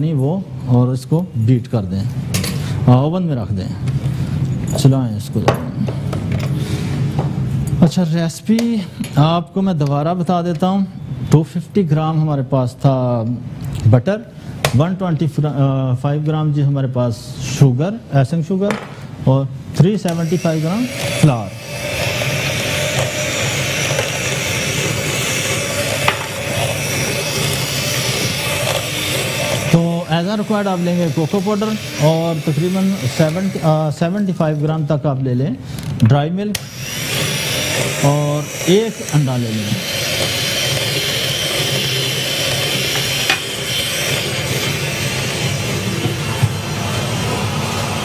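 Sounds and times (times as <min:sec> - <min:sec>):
electric hand mixer running: 0:20.0 - 0:34.7, 0:36.6 - 0:48.0
beaters knocking bowl: 0:20.1 - 0:33.6, 0:36.6 - 0:46.5.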